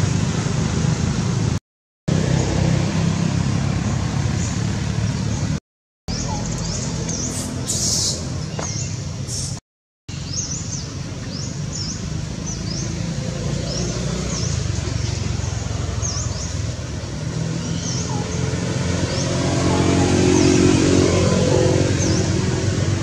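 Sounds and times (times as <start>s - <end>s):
bird chirping: 3.9s - 20.8s.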